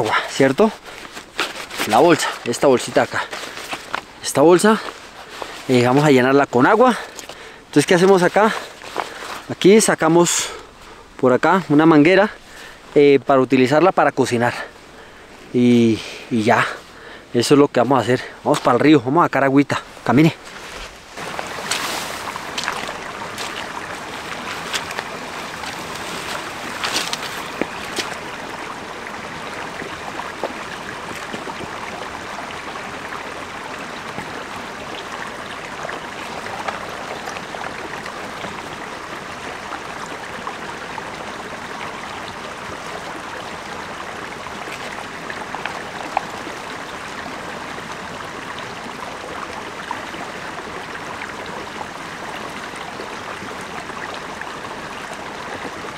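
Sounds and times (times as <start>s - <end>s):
stream running over rocks: 0.0s - 55.9s.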